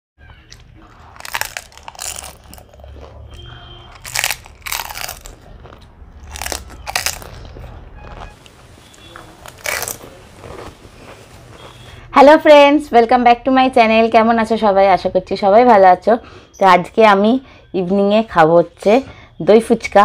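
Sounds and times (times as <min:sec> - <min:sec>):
quiet chewing: 0:00.3 - 0:12.0
loud crunches of biting: 0:00.4 - 0:08.5, 0:09.4 - 0:10.8.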